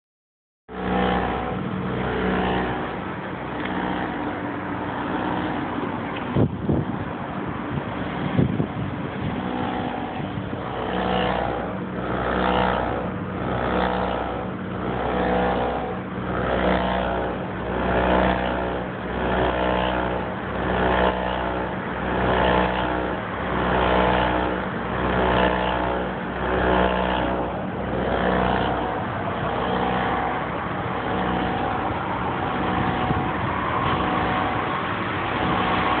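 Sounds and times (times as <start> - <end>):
pulsing low hum: 0.7 - 36.0
pulsing sci-fi tone: 0.7 - 36.0.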